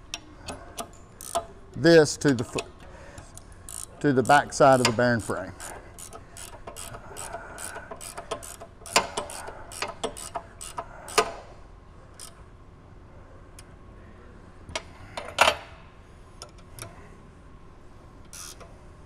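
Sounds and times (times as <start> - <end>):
ratchet wrench clicking: 0.0 - 1.6, 2.2 - 11.4, 12.2 - 12.4, 18.3 - 18.7.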